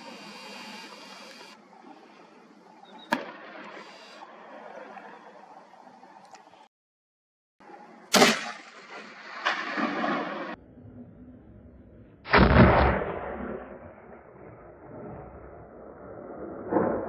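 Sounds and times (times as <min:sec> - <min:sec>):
rifle shots echoing: 0:08.1 - 0:10.6
dull boom: 0:12.3 - 0:15.5.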